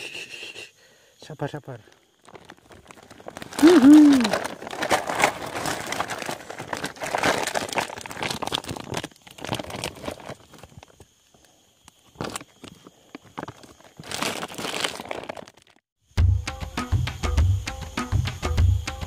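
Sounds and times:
plastic sack crinkling and rustling: 0:02.2 - 0:11.1, 0:12.2 - 0:15.9.

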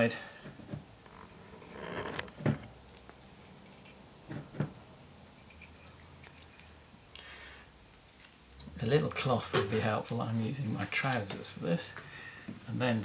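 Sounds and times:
fingers rubbing wood: 0:01.0 - 0:02.7.

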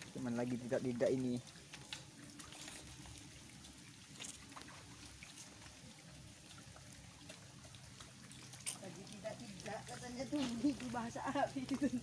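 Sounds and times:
footsteps squelching in mud: 0:08.0 - 0:12.0.

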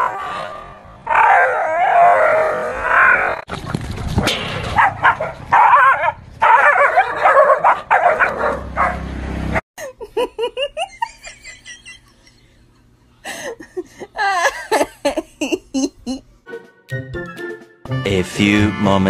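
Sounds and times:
dog barking and yelping: 0:04.8 - 0:09.0
high-pitched laughter-like sounds: 0:09.8 - 0:12.4, 0:13.3 - 0:16.2.

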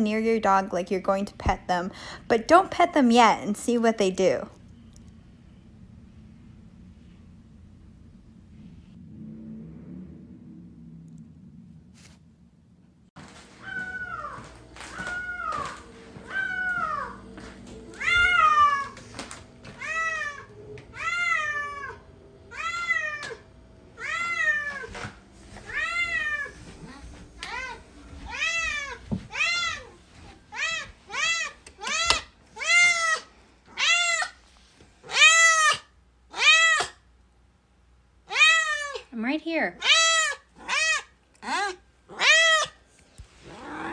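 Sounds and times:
cat meowing: 0:13.6 - 0:17.2, 0:18.0 - 0:19.0, 0:19.8 - 0:23.4, 0:24.0 - 0:25.0, 0:25.6 - 0:34.4, 0:39.8 - 0:42.8.

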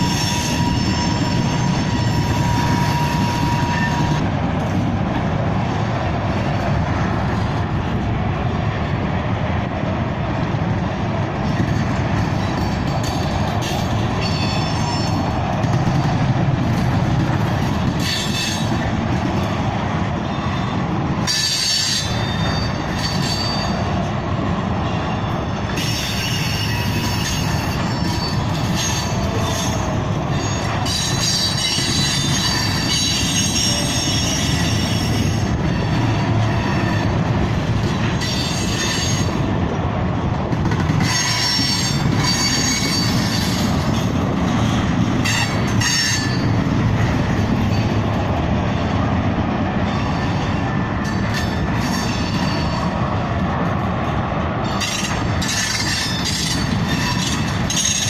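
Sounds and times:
high wheel squeal: 0:00.0 - 0:04.3, 0:12.5 - 0:15.4, 0:20.2 - 0:23.9, 0:24.8 - 0:37.2, 0:38.2 - 0:39.4, 0:41.0 - 0:43.8, 0:54.6 - 0:58.0
freight train wheels rumbling: 0:00.0 - 0:58.0.

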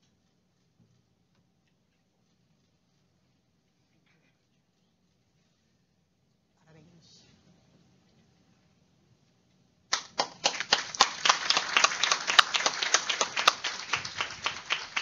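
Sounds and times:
small group applauding: 0:09.9 - 0:15.0.

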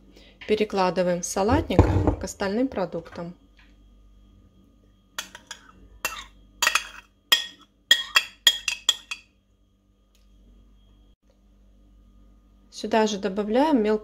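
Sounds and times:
metal spoon scraping glass bowl: 0:05.2 - 0:09.2.

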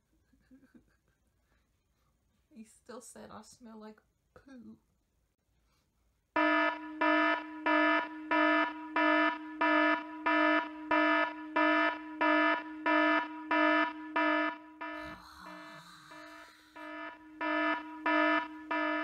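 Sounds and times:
phone ringtone electronic beep: 0:06.4 - 0:19.0.

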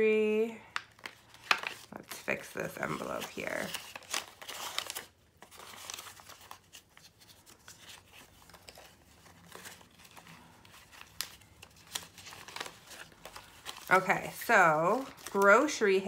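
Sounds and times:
paper bills rustling: 0:00.8 - 0:16.0.

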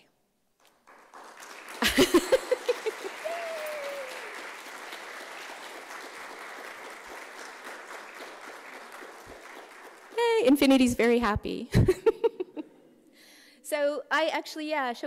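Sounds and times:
audience applauding: 0:00.6 - 0:11.2.

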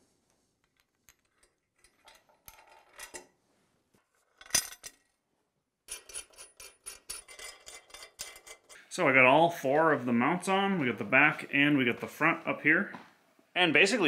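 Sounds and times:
small metal rattles: 0:05.9 - 0:08.8.

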